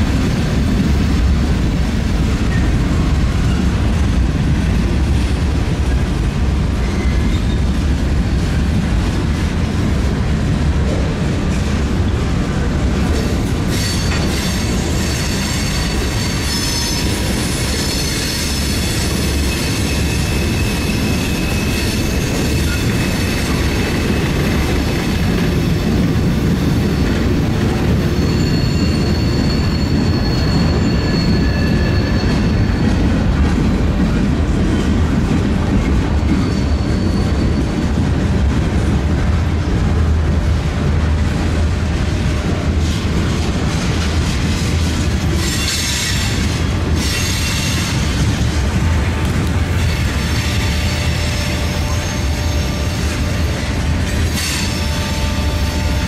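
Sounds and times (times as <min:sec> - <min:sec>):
train wheels rumbling on rail: 0:00.0 - 0:56.0
high thin wheel squeal: 0:06.8 - 0:07.6, 0:13.7 - 0:24.1, 0:28.0 - 0:33.0, 0:36.4 - 0:37.7.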